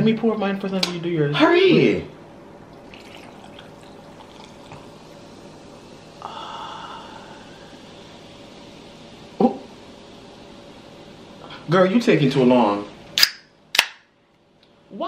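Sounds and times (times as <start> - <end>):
soda fizzing: 2.7 - 5.8
soda pouring over ice: 2.8 - 5.2.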